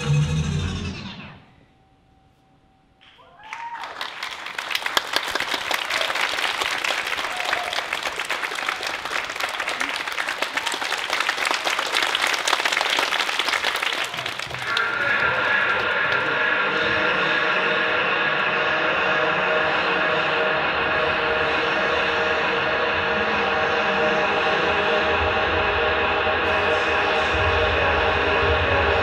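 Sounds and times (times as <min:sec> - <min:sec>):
audience applauding: 0:03.0 - 0:18.4
droning sustained tones: 0:14.6 - 0:29.0.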